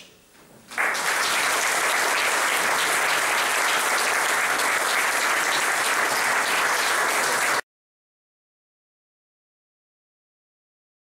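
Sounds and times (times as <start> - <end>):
audience applauding: 0.7 - 7.6.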